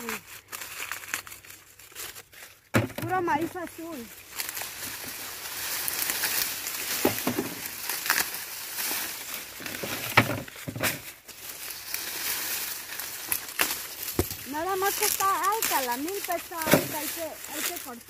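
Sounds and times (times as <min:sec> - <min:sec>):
dry cornstalks rustling: 0:00.0 - 0:18.0
corn ears snapping off: 0:04.3 - 0:11.2, 0:11.9 - 0:18.0.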